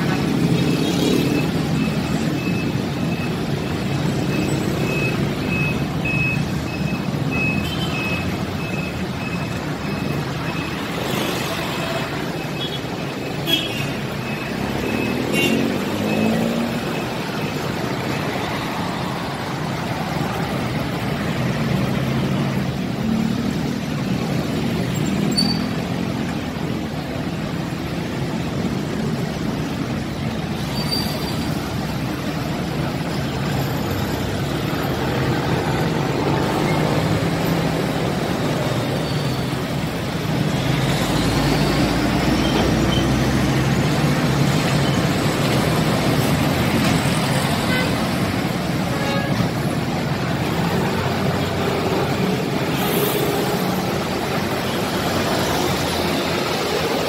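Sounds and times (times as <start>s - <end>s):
car truck and motorcycle engines: 0.0s - 57.0s
tyre noise of passing vehicles: 0.0s - 57.0s
high electronic beep: 0.8s - 13.4s.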